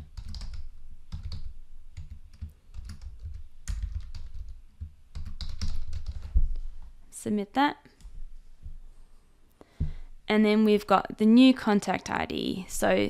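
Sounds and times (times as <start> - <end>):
typing on computer keyboard: 0.0 - 6.4.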